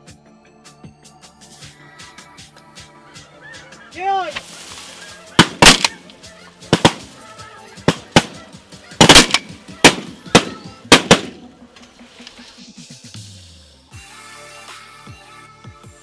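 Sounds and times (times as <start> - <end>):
shotgun blasts: 5.4 - 6.0, 6.7 - 7.1, 7.9 - 11.5.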